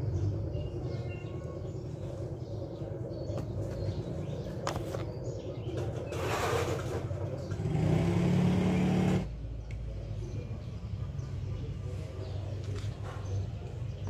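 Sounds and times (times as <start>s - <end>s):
vehicle engine running: 7.0s - 14.0s.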